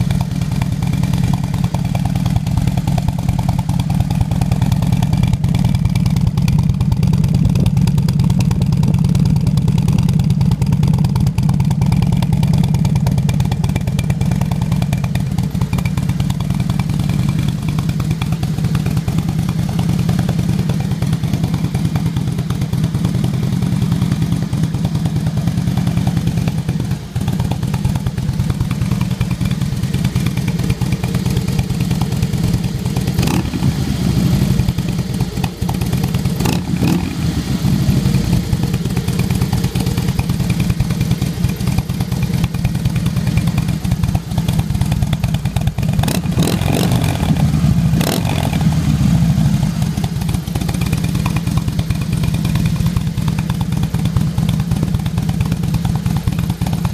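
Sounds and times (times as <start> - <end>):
motorcycle engine idling: 0.0 - 56.9.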